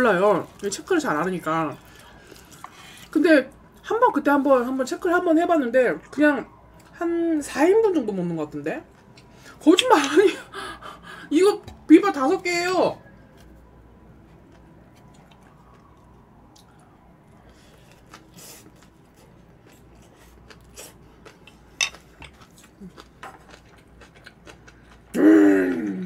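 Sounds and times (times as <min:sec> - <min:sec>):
soft chewing: 0:00.1 - 0:03.8, 0:13.1 - 0:26.0.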